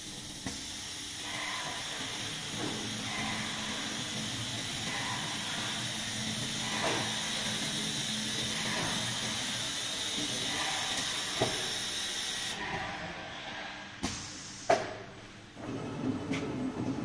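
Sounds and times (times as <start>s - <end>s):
machine air hiss: 0.0s - 12.7s, 13.9s - 15.1s
low machine hum: 0.0s - 13.6s.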